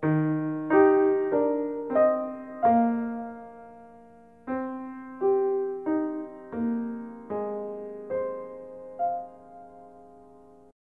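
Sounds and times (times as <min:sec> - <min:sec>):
slow piano music: 0:00.0 - 0:10.8.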